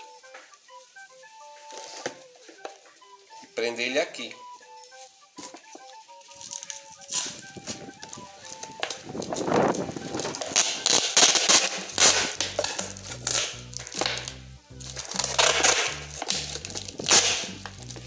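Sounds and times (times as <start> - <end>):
packing tape ripping off roll: 0.0 - 3.0, 5.0 - 18.0
plastic bottle crinkling: 0.0 - 3.8, 4.6 - 18.0
background music with bass: 0.0 - 18.0.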